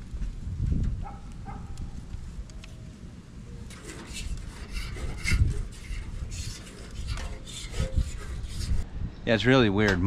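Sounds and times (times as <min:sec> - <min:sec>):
scraping on sheet metal: 0:03.7 - 0:08.8.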